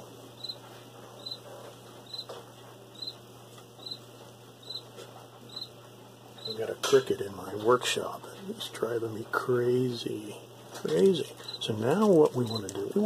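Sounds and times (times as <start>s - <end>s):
cricket chirping: 0.4s - 0.6s, 1.2s - 1.4s, 2.1s - 2.3s, 2.9s - 3.2s, 3.8s - 4.0s, 4.6s - 4.8s, 5.5s - 5.7s.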